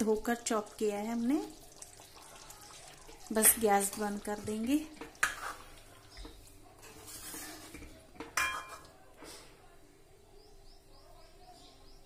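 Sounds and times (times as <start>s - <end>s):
ladle stirring thick curry: 1.2s - 9.4s
ladle clinking against pot: 6.2s - 8.9s.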